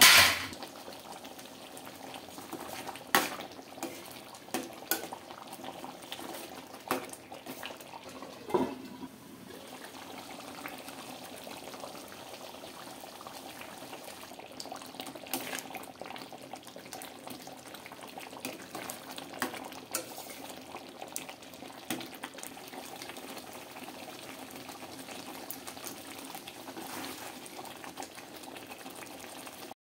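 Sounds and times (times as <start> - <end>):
ladle scraping metal pot: 0.0 - 0.6, 7.5 - 9.2
curry simmering and bubbling: 0.5 - 29.8.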